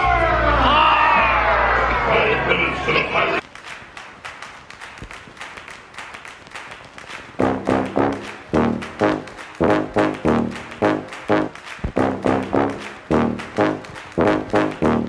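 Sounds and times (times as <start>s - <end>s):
brass music: 7.4s - 15.0s.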